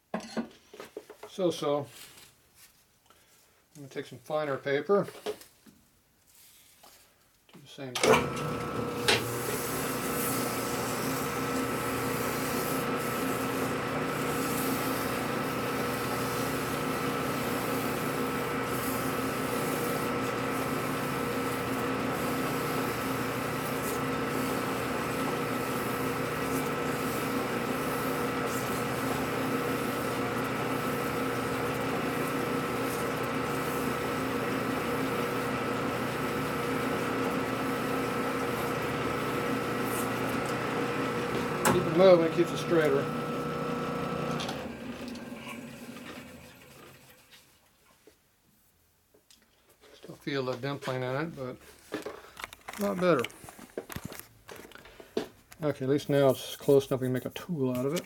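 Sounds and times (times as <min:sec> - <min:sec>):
metal lathe whining: 0:08.0 - 0:47.0
abrasive paper on spinning metal: 0:09.2 - 0:40.6.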